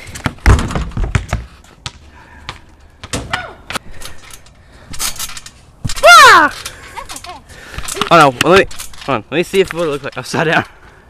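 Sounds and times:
basketball bouncing thuds: 0:00.1 - 0:03.5
basketball hitting hoop: 0:00.2 - 0:01.4.

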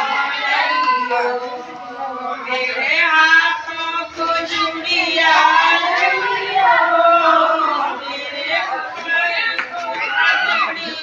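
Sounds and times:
women singing together: 0:00.0 - 0:11.0.

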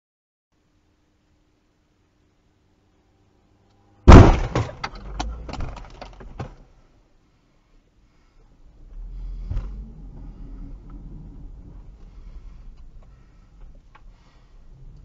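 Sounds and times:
car crash knocks and clatter: 0:04.1 - 0:06.6
low rumble from car: 0:07.7 - 0:15.0.

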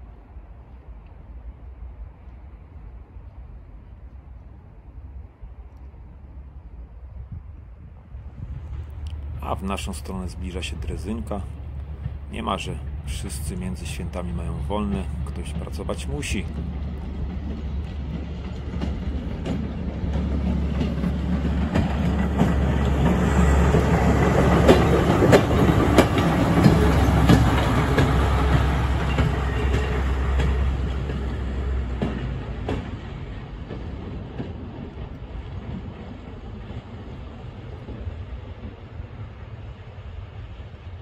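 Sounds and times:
motor trolley engine hum: 0:08.5 - 0:35.8
wheels clicking over rail joints: 0:10.6 - 0:37.2.

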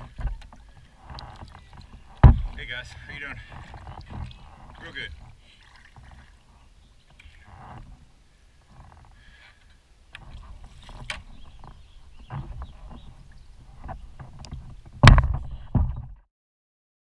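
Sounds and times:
light knocks against kayak hull: 0:00.0 - 0:05.0, 0:10.2 - 0:16.1
kayak thumping against dock: 0:00.0 - 0:06.4, 0:10.1 - 0:16.2
water splashing from paddling: 0:00.0 - 0:15.9.

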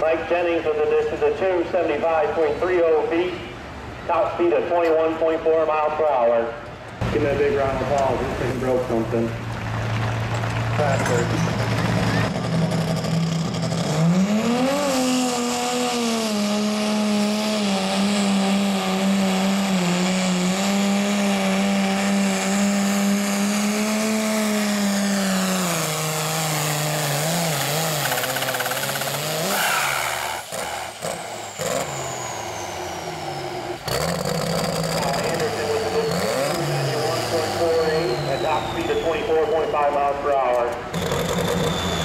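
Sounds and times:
pulling tractor engine revving hard: 0:07.0 - 0:42.0
high whine falling in pitch: 0:35.0 - 0:42.0.

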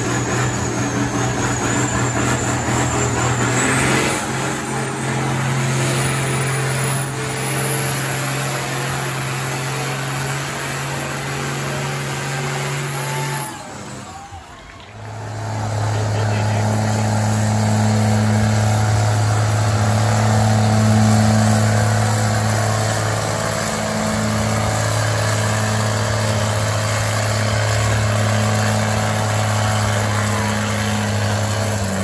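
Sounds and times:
tractor engine under load: 0:00.0 - 0:32.0.

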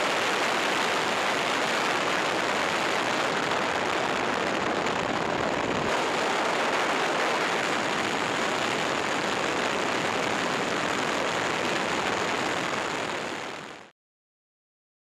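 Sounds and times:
faint high whine: 0:00.0 - 0:13.9
helicopter rushing noise: 0:02.0 - 0:11.0.

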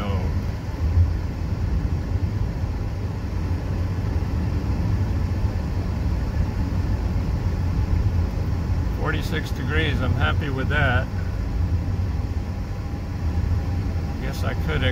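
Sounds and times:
car engine and road rumble: 0:00.0 - 0:14.9.

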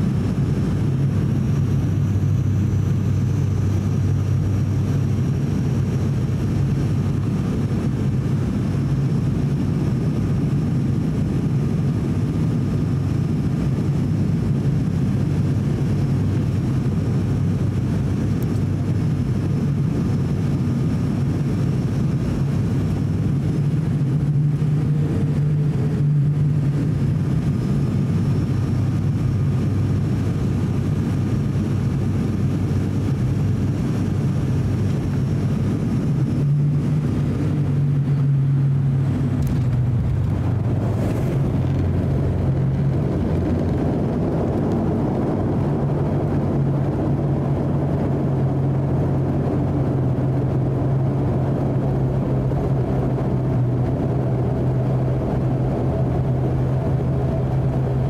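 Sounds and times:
turboprop engine cabin drone: 0:00.0 - 0:58.0
faint high whine: 0:30.8 - 0:42.7.

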